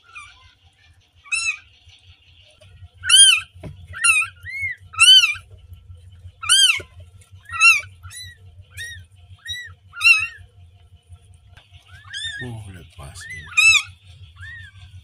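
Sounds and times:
low steady rumble: 0.0s - 15.0s
kitten mewing: 7.5s - 10.4s, 11.9s - 14.8s.

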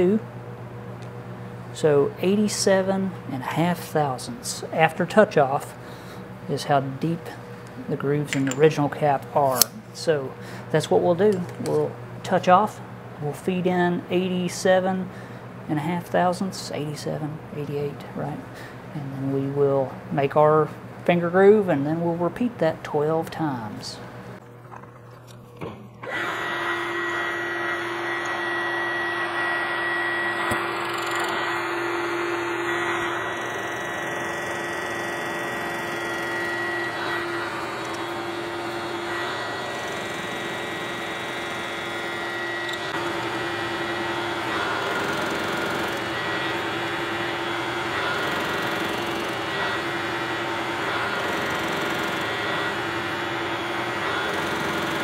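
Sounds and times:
milling machine humming: 24.1s - 55.0s.

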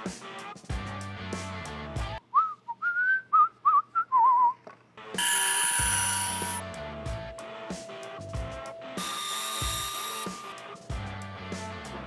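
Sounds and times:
background music: 0.0s - 2.2s, 5.0s - 12.0s
person whistling a tune: 2.3s - 4.6s
bright steady high tone: 5.2s - 10.8s.

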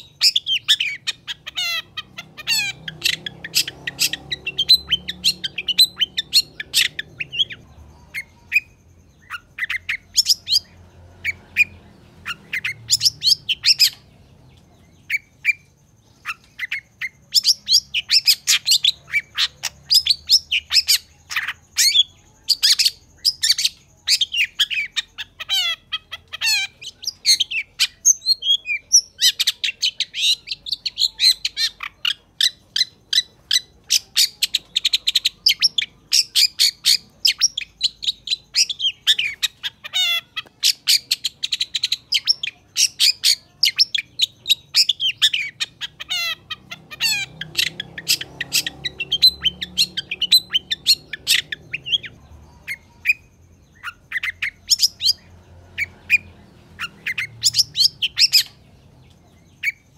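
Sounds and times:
bird high chattering song: 0.0s - 59.9s.

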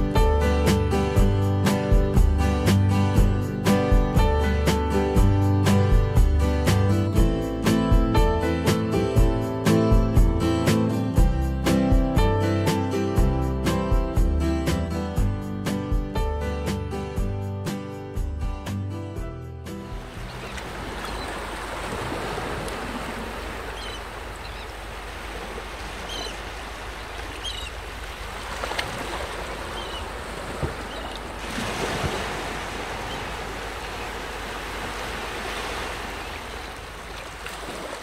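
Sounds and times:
surf washing against rocks: 19.9s - 38.0s.

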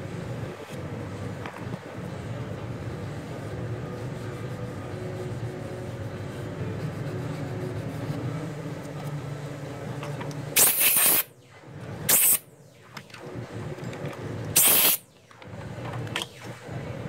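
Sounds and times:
steady low hum: 0.0s - 17.0s
sharp hiss bursts: 10.6s - 11.3s, 12.1s - 12.4s, 14.6s - 15.0s.

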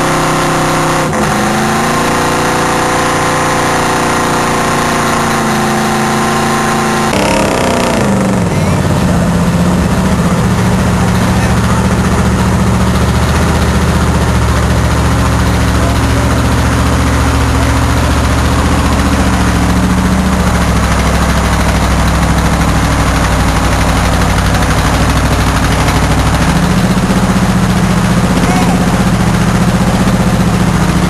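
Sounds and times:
truck engine idling low: 7.0s - 31.0s.

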